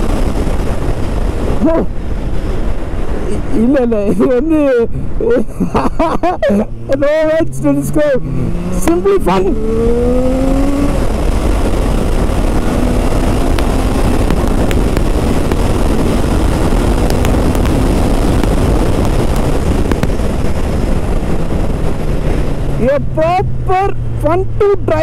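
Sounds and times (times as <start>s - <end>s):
wind rush on microphone: 0.0s - 25.0s
motorcycle engine: 6.5s - 25.0s.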